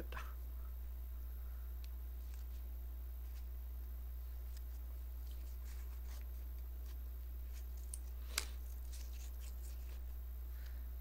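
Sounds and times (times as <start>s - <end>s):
paper rustling and crinkling: 4.3s - 10.1s.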